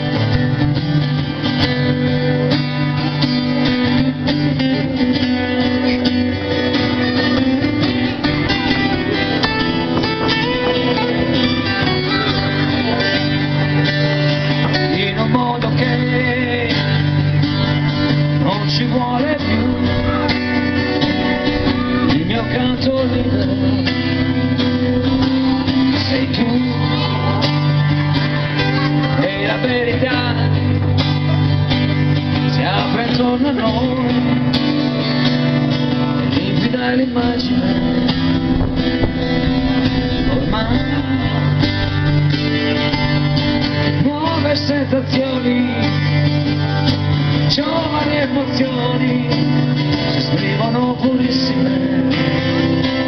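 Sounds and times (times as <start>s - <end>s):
acoustic guitar playing: 0.0s - 53.0s
sustained bass chords: 0.0s - 53.0s.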